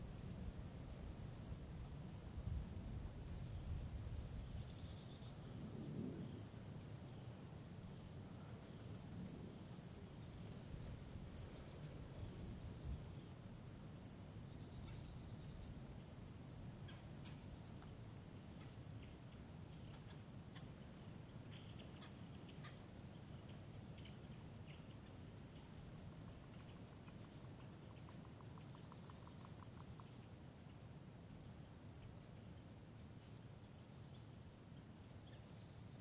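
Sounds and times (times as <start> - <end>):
low wind rumble: 0.0 - 19.9.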